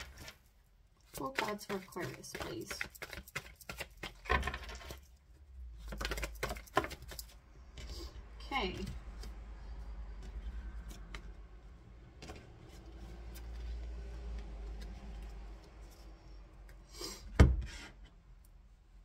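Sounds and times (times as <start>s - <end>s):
cards sliding and tapping: 1.4s - 5.0s.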